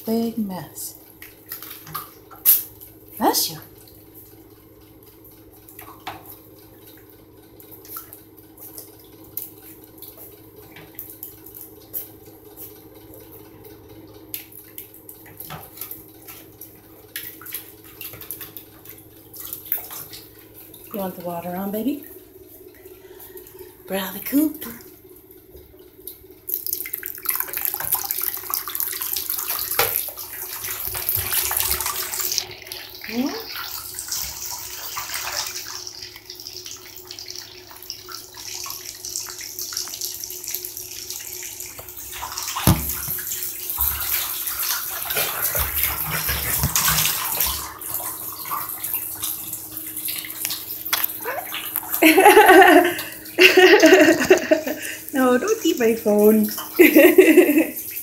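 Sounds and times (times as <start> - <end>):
tap water splashing into basin: 26.5 - 40.6, 41.7 - 55.0.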